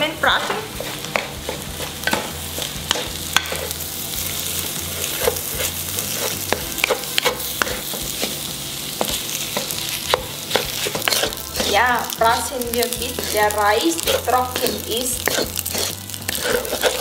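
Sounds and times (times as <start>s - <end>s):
food sizzling in hot oil: 0.0s - 17.0s
utensil scraping and knocking pan: 0.3s - 3.8s, 5.0s - 8.4s, 9.0s - 17.0s.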